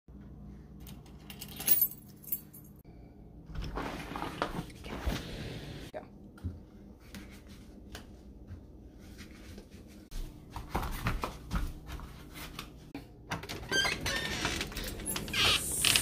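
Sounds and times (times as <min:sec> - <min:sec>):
door creaking open: 0:13.3 - 0:16.0.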